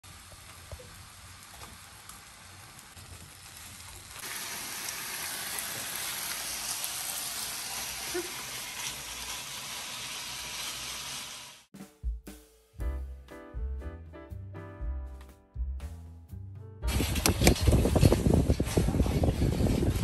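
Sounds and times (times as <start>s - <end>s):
meat sizzling on grill pan: 0.1s - 11.7s.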